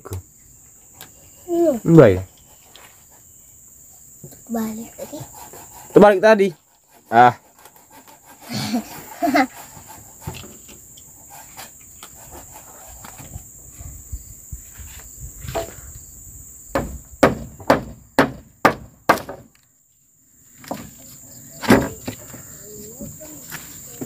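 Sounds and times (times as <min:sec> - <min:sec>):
high insect buzz: 0:00.0 - 0:24.0
tool knocking on timber: 0:16.7 - 0:19.5, 0:21.6 - 0:22.4.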